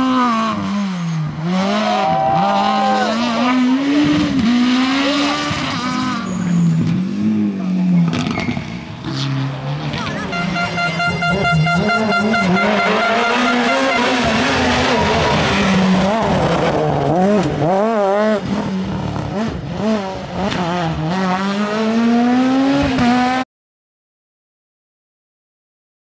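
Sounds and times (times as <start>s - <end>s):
rally car engine revving: 0.0s - 23.4s
air horn chord: 10.2s - 14.4s.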